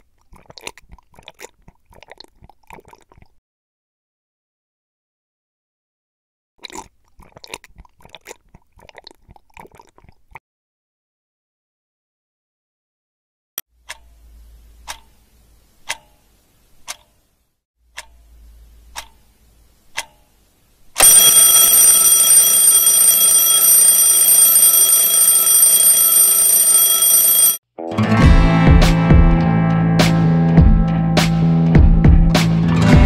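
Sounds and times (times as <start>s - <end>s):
alarm clock ringing: 21.0s - 27.6s.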